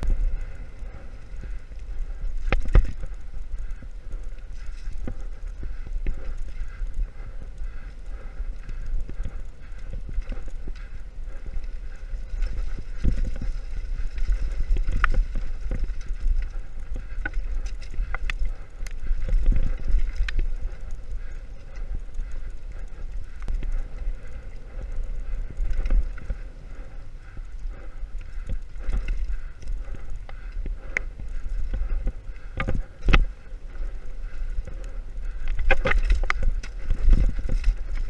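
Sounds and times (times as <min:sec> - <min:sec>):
wind rumble on microphone: 0:00.0 - 0:38.0
bike clattering over dirt trail: 0:08.6 - 0:21.4.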